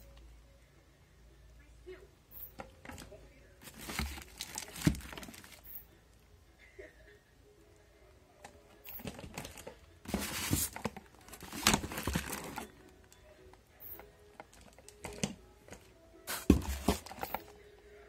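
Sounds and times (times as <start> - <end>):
plastic wrapping crinkling: 3.6 - 5.7, 9.0 - 12.8.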